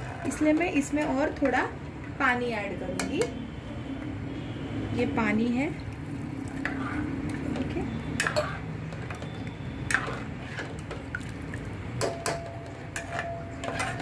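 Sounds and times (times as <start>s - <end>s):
steel spoon stirring in a pot: 6.1s - 14.0s
spoon clinking against pot: 8.1s - 9.3s, 12.0s - 14.0s.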